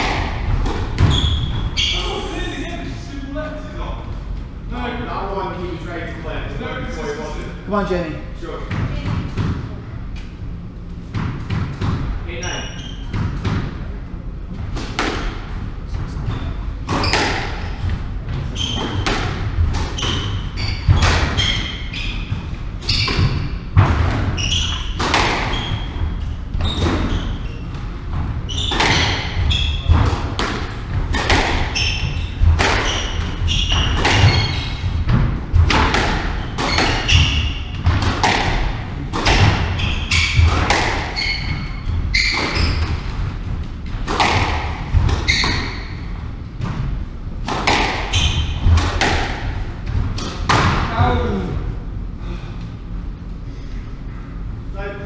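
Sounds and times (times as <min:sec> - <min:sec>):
shoes squeaking on wooden floor: 0:01.0 - 0:02.7, 0:18.4 - 0:19.1, 0:31.7 - 0:35.1, 0:39.6 - 0:43.0, 0:45.2 - 0:46.0
squash ball knocks: 0:28.7 - 0:31.8, 0:32.4 - 0:41.2, 0:44.0 - 0:45.6, 0:47.4 - 0:51.0.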